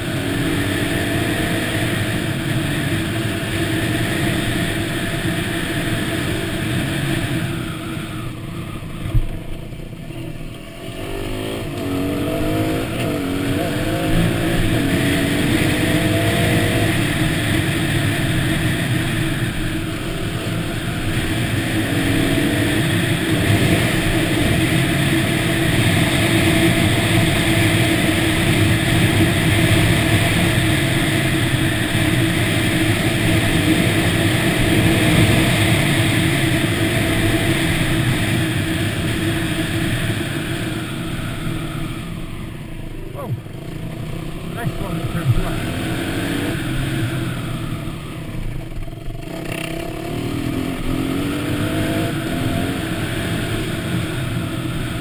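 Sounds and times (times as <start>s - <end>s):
dirt bike engine revving: 10.8s - 48.4s, 49.0s - 55.0s.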